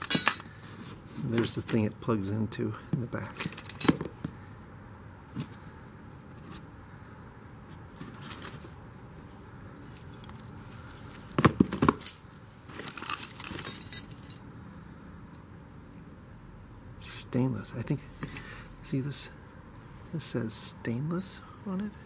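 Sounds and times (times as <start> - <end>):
metal parts clinking and rattling: 0.0 - 0.7, 3.3 - 4.3, 10.0 - 14.5.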